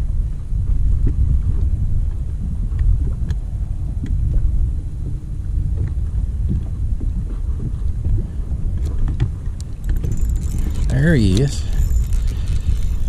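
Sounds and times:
wind buffeting microphone: 0:00.0 - 0:13.0
faint ticks: 0:05.8 - 0:13.0.

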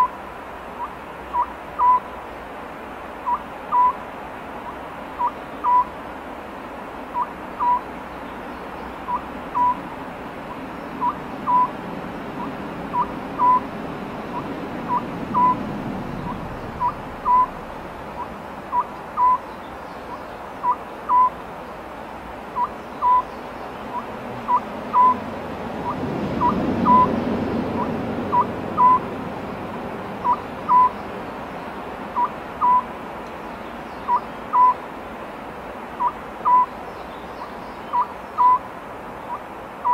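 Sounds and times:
owl calling: 0:00.8 - 0:02.1, 0:03.2 - 0:04.0, 0:04.7 - 0:06.0, 0:07.1 - 0:07.9, 0:09.0 - 0:09.9, 0:10.5 - 0:21.4, 0:22.6 - 0:23.3, 0:23.9 - 0:25.2, 0:25.8 - 0:27.2, 0:27.8 - 0:29.1, 0:30.2 - 0:31.0, 0:32.1 - 0:32.9, 0:34.0 - 0:34.8, 0:36.0 - 0:36.8, 0:37.4 - 0:39.9
low background rumble: 0:09.3 - 0:19.2.

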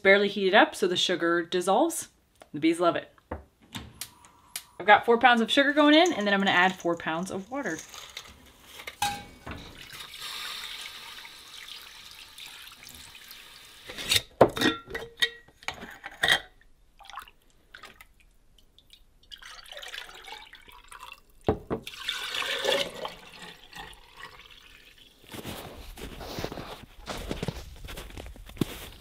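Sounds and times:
water pouring into a pot: 0:09.4 - 0:14.0, 0:18.8 - 0:25.3
syrup pouring into glass jars: 0:21.9 - 0:25.1.

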